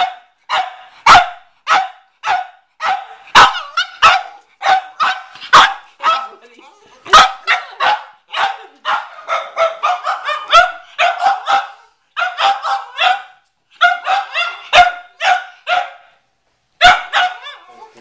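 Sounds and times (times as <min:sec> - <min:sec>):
dog barking: 0:00.0 - 0:06.4, 0:07.1 - 0:16.2, 0:16.8 - 0:18.0.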